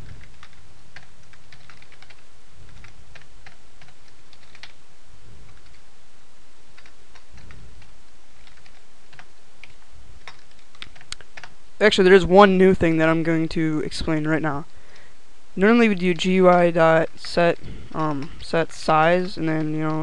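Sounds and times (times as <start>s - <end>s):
computer keyboard typing: 0.0s - 4.8s, 5.4s - 5.8s, 6.7s - 11.6s, 15.9s - 20.0s
steady low hum: 0.0s - 20.0s.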